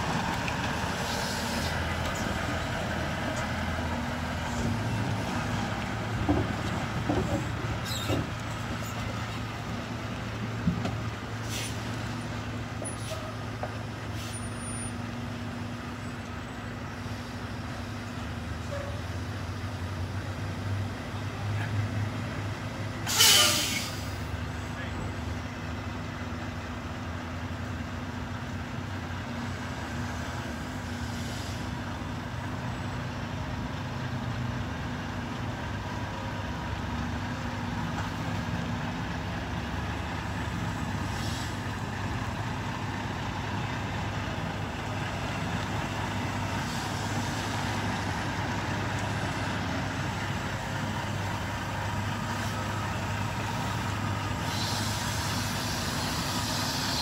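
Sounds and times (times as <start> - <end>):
diesel truck engine running: 0.0 - 57.0
air brake hisses: 11.4 - 11.9, 12.9 - 13.4, 23.1 - 24.2, 41.0 - 41.6, 54.4 - 57.0.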